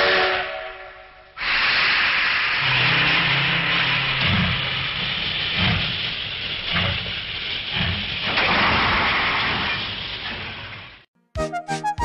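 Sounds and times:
steam locomotive hissing: 0:00.0 - 0:11.0
locomotive chuffing: 0:01.4 - 0:11.0.

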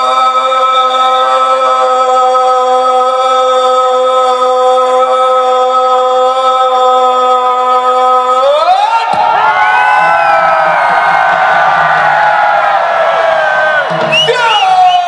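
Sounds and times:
man shouting drawn-out command: 0:14.3 - 0:15.0.

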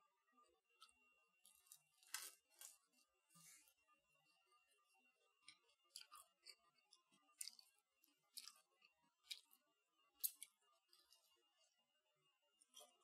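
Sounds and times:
chewing crispy food: 0:01.4 - 0:03.1, 0:05.3 - 0:11.8, 0:12.6 - 0:13.0.

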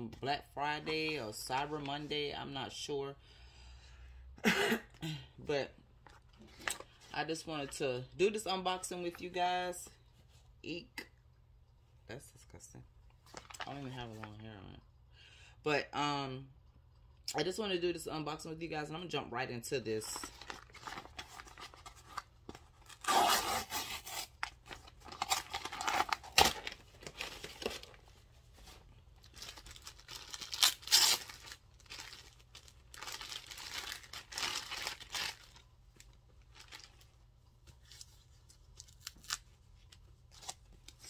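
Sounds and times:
packaging tearing and rustling: 0:20.2 - 0:37.0.

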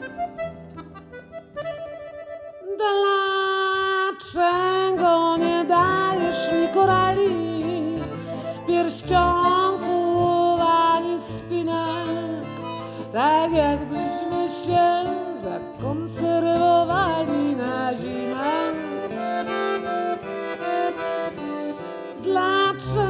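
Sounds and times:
accordion playing: 0:00.0 - 0:23.0
guitar accompaniment: 0:00.0 - 0:23.0
woman singing with vibrato: 0:02.6 - 0:12.5, 0:13.1 - 0:19.1, 0:22.2 - 0:23.0.

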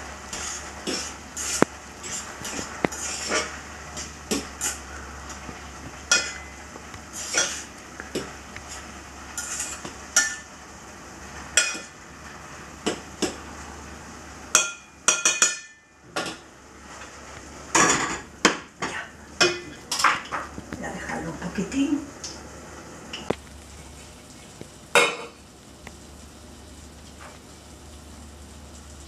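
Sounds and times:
spoon stirring in steel pot: 0:00.2 - 0:04.9, 0:06.0 - 0:10.5.

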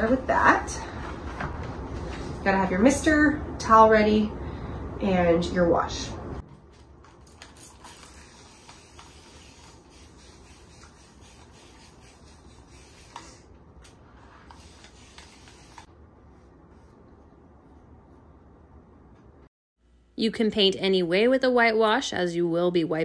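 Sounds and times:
paintbrush rubbing on wood: 0:08.2 - 0:13.4, 0:14.1 - 0:19.1.

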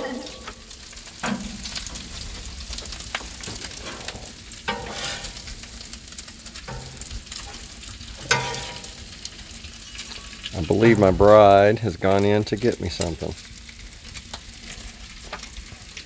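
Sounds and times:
bacon sizzling on a griddle: 0:00.0 - 0:16.0.

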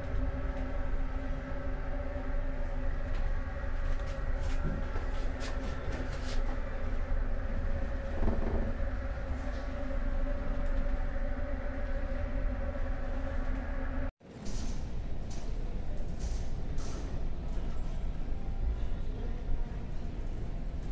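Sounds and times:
ship engines droning: 0:00.0 - 0:14.1.

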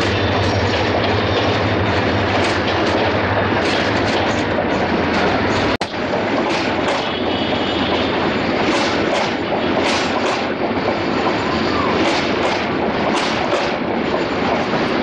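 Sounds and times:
train coaches rumbling on track: 0:00.0 - 0:15.0
wheel clacks and squeals: 0:00.0 - 0:15.0.

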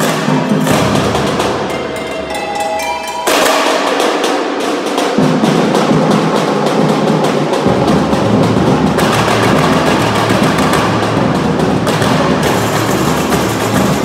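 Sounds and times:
samba drum corps playing: 0:00.0 - 0:14.0
bell-like ringing tones: 0:01.6 - 0:04.1.

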